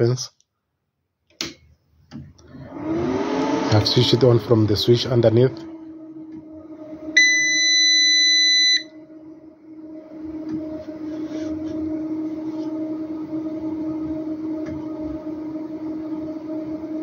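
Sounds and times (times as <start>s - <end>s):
inverter humming: 1.4s - 17.0s
inverter buzzer beep: 7.2s - 9.0s.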